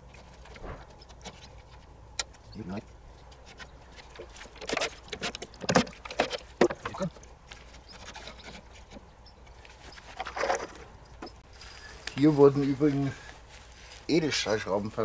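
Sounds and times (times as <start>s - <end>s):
wooden boards knocking and scraping: 4.2s - 9.1s.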